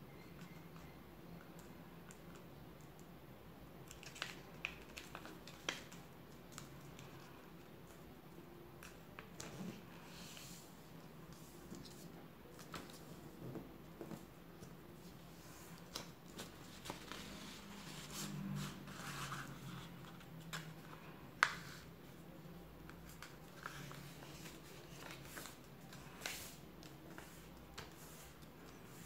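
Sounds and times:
paper rustling and crinkling: 14.0 - 21.9, 22.9 - 29.0.

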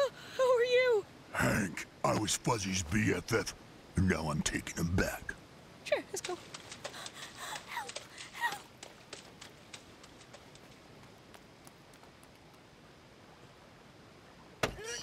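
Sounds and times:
cartoon footsteps: 6.2 - 12.6.

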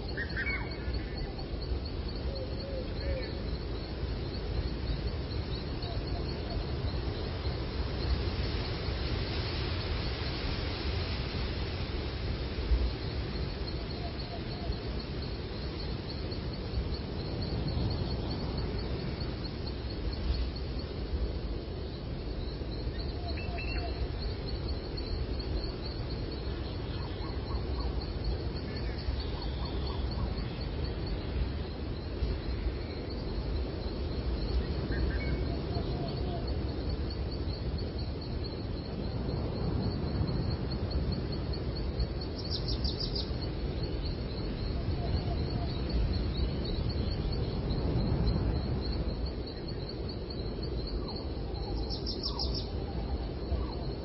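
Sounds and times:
birds singing: 42.4 - 47.6, 50.7 - 54.0.

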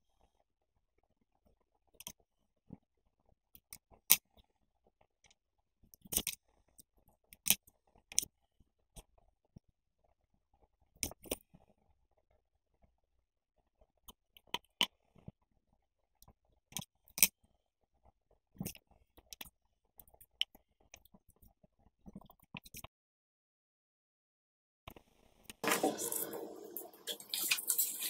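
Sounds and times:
paper crinkling and rustling: 25.6 - 28.0.

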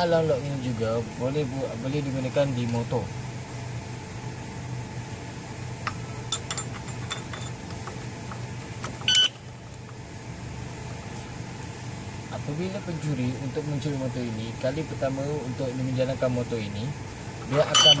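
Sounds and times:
short electronic beep: 9.1 - 9.4, 17.8 - 18.0.

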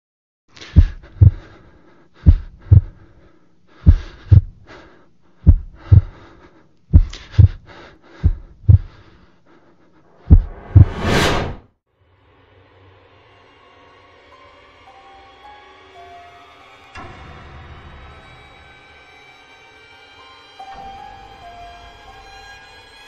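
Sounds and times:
heartbeat thumps: 0.8 - 1.5, 2.2 - 3.0, 3.8 - 4.6, 5.4 - 6.2, 6.9 - 9.0, 10.2 - 11.2.

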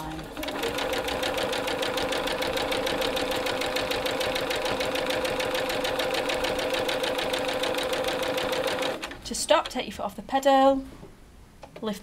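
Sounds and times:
sewing machine running: 0.0 - 9.2.

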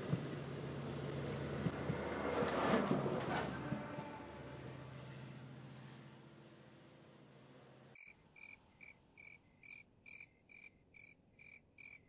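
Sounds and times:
cricket chirping: 8.0 - 12.0.

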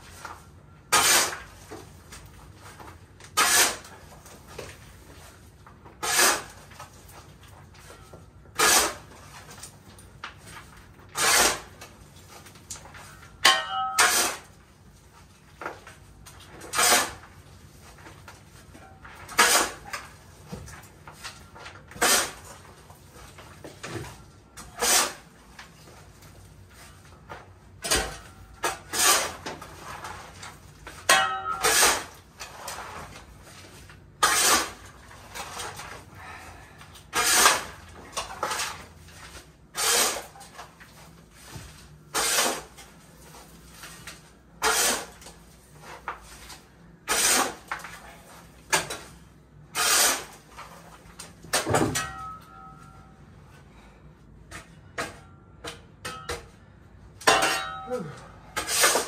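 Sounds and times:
metal ringing on stone: 13.4 - 14.2, 31.1 - 31.8, 52.0 - 53.2, 57.3 - 58.2.

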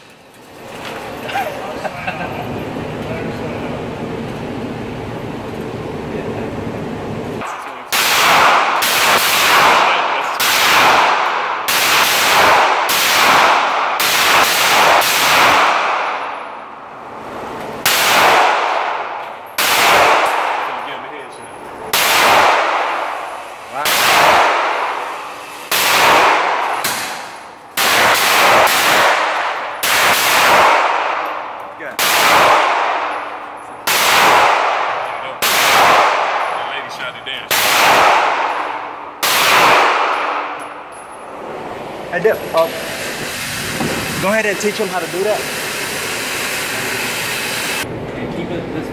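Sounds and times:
gunshots echoing indoors: 7.4 - 21.0, 21.8 - 41.5.

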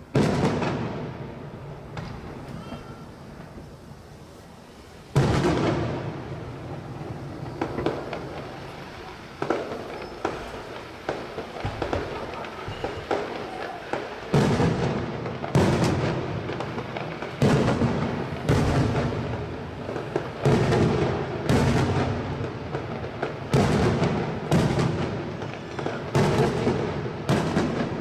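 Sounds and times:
firework shells bursting: 5.1 - 28.0.

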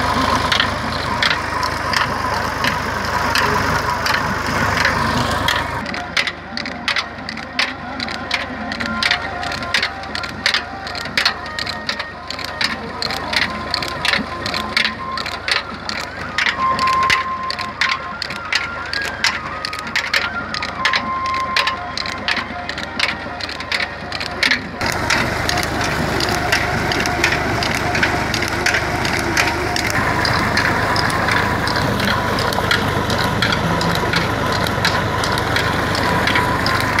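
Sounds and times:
water gushing from pipe: 0.0 - 5.9, 24.2 - 37.0
pump clattering: 0.0 - 37.0
tractor running: 0.0 - 37.0.

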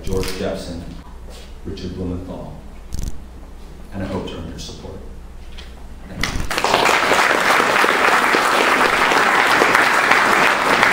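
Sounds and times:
audience applauding: 6.5 - 10.9.

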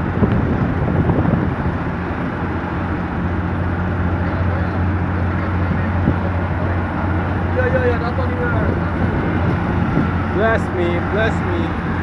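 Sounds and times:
crane motor humming: 0.0 - 12.0.

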